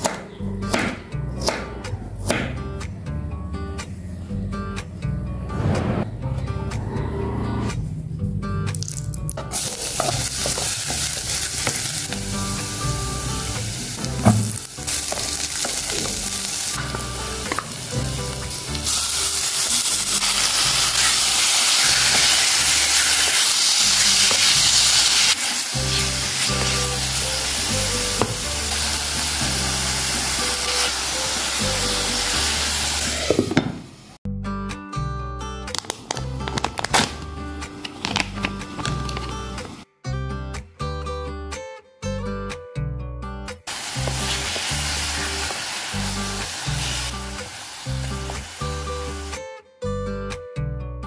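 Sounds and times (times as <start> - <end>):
food sizzling in hot oil: 8.8 - 33.6, 43.7 - 49.4.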